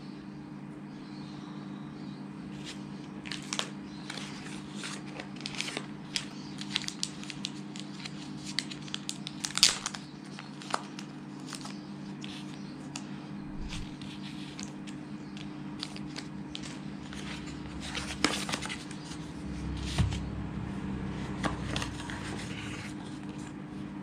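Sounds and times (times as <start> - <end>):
plastic packets crinkling: 3.3 - 11.7
steady low hum: 11.2 - 24.0.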